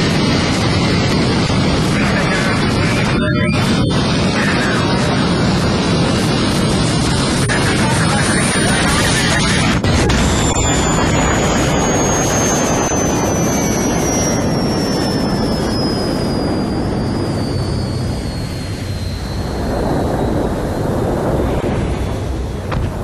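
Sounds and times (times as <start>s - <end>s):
thin high whine: 7.4s - 23.0s.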